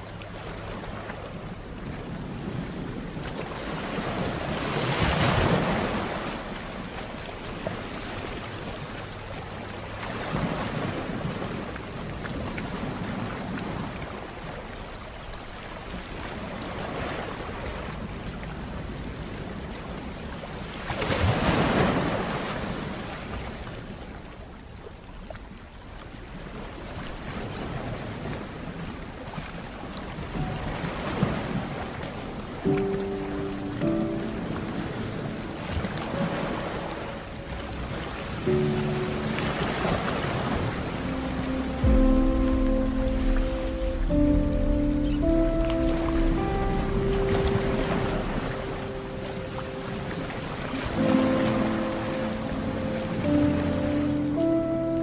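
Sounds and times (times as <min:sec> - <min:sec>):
waves washing onto rocky shore: 0:00.0 - 0:09.0.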